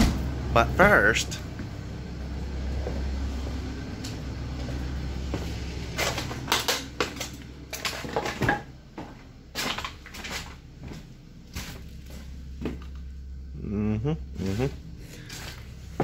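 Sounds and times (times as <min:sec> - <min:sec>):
steady low hum: 0:00.0 - 0:16.0
footsteps crunching over debris: 0:02.8 - 0:12.8.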